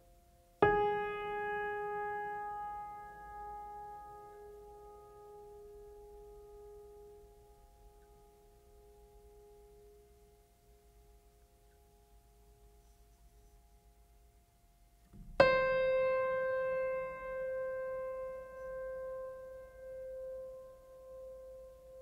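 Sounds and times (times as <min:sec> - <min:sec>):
faint background music tones: 0:00.0 - 0:22.0
piano note ringing: 0:00.6 - 0:10.0, 0:15.2 - 0:22.0.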